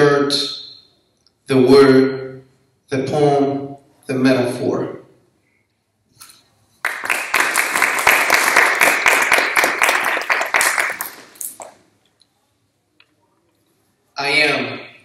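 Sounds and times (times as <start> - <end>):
audience clapping: 6.8 - 11.8.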